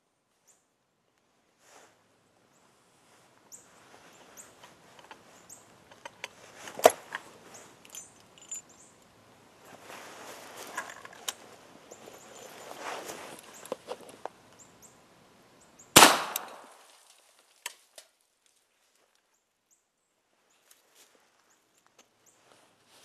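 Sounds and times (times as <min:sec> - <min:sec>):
faint bird chirps: 0:07.4 - 0:09.0
sharp metallic click: 0:16.0 - 0:16.6
rifle handling clicks: 0:16.0 - 0:16.7.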